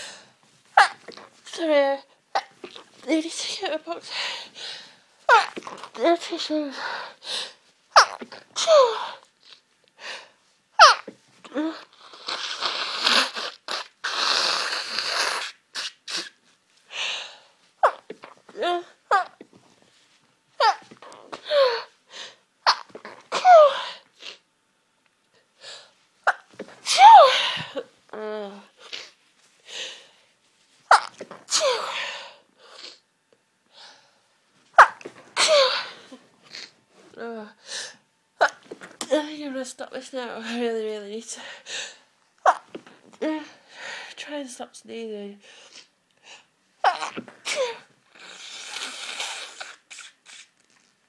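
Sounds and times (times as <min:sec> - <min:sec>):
woman sneezing: 0:08.0 - 0:09.2, 0:26.3 - 0:27.8, 0:30.9 - 0:32.3, 0:34.8 - 0:36.7, 0:46.8 - 0:47.9.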